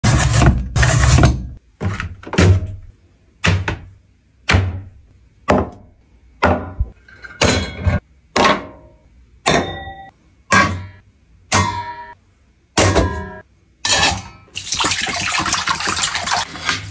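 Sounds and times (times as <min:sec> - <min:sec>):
metal plate ringing: 0:09.5 - 0:11.0.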